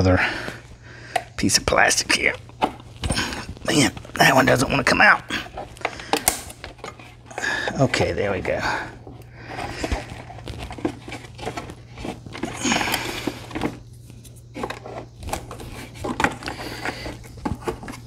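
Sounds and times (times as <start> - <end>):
plastic parts clicking and knocking: 5.5 - 7.8, 14.5 - 18.0.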